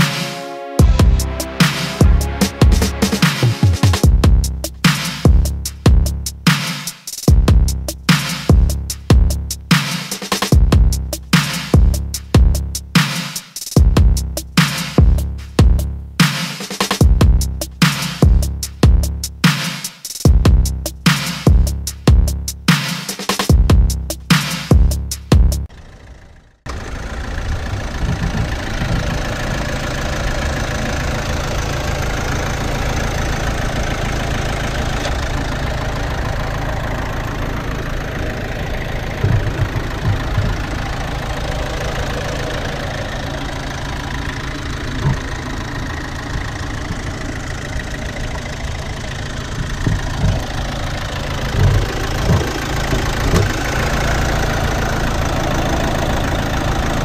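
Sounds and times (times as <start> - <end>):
diesel engine idling: 0.0 - 6.5, 7.3 - 9.7, 10.6 - 13.0, 17.0 - 19.4, 25.4 - 57.0
low thumps: 0.8 - 6.4, 7.3 - 7.9, 8.5 - 9.6, 38.2 - 43.0, 47.9 - 54.5.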